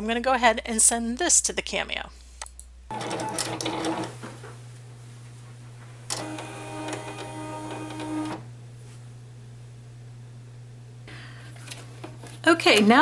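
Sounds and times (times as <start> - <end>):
steady low hum: 4.1 - 12.6.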